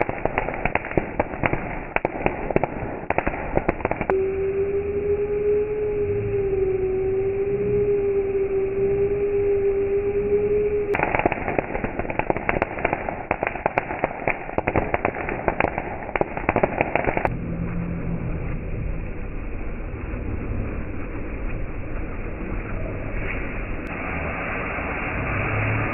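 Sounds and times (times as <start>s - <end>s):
firework fountain crackling: 0.0s - 4.2s, 10.9s - 17.3s, 20.6s - 25.8s
low steady rumble: 2.7s - 12.4s, 17.2s - 25.9s.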